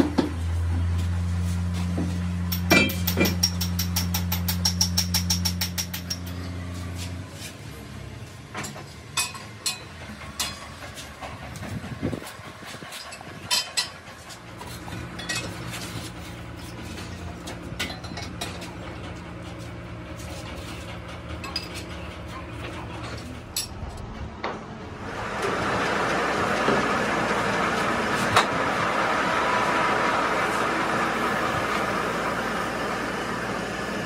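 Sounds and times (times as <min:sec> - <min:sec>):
metal clinks and knocks: 0:02.5 - 0:06.6
low machine hum: 0:09.2 - 0:34.0.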